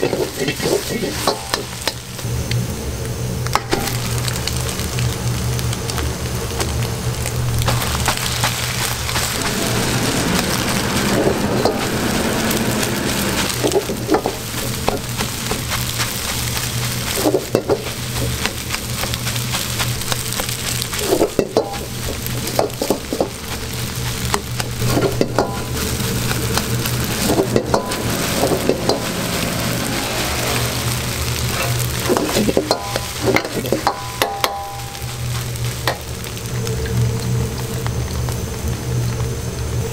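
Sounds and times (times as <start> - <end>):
egg and rice sizzling in a wok: 0.0 - 39.9
metal ladle scraping a wok: 24.8 - 35.4.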